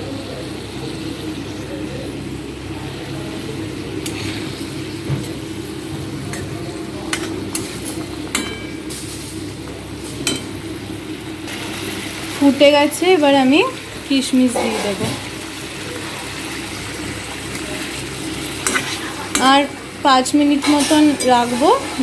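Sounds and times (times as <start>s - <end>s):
curry sizzling and bubbling: 0.0s - 22.0s
metal spatula scraping a pan: 14.6s - 15.1s, 20.6s - 22.0s.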